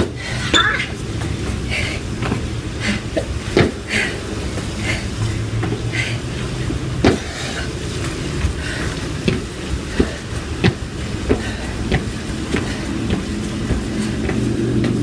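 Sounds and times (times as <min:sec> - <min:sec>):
feet landing on tiled floor: 0:07.0 - 0:07.3.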